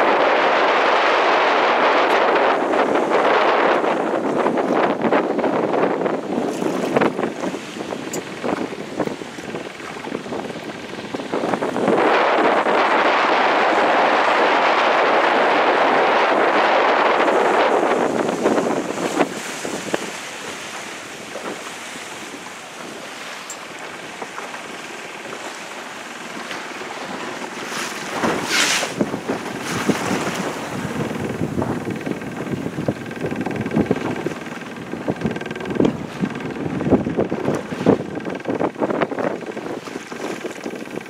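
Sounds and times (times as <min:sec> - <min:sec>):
waves on open sea: 0:00.0 - 0:41.0
wind buffeting microphone: 0:00.0 - 0:41.0.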